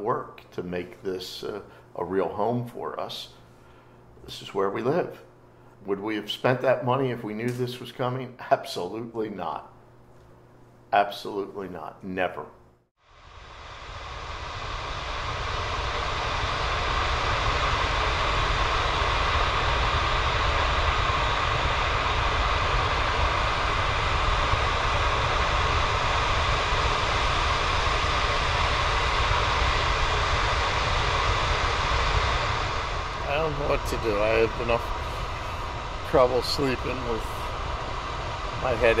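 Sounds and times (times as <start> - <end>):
gas flare rushing: 13.0 - 39.0
deep rumble: 13.3 - 39.0.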